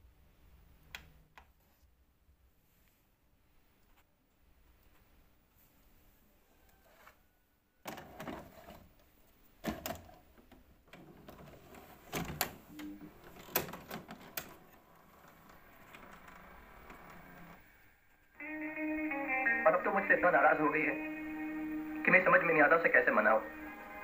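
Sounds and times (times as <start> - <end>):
cassette being handled: 9.6 - 17.5.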